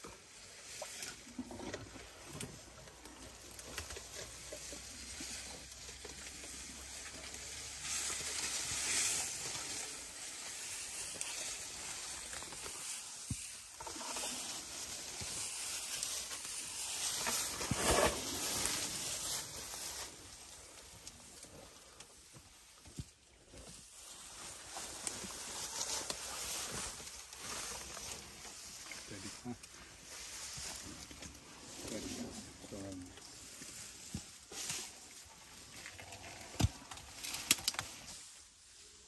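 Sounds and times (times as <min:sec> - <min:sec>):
branches and brush rustling: 0:00.0 - 0:39.0
branches cracking: 0:00.9 - 0:22.2, 0:33.2 - 0:38.4.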